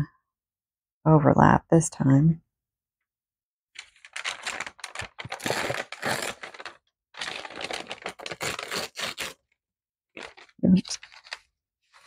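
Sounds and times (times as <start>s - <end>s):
paper crinkling in hands: 3.8s - 9.5s, 10.2s - 12.0s
paper bag tearing: 3.8s - 9.6s, 10.2s - 12.0s.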